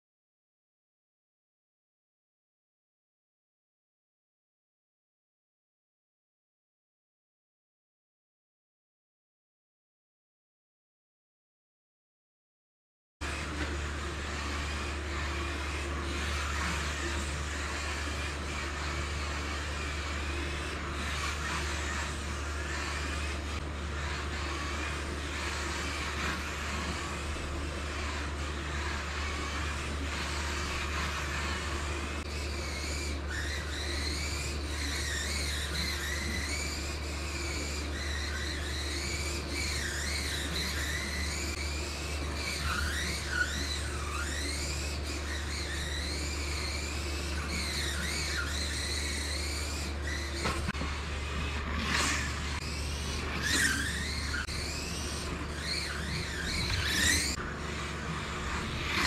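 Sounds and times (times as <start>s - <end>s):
toy car motor whining: 13.2s - 59.0s.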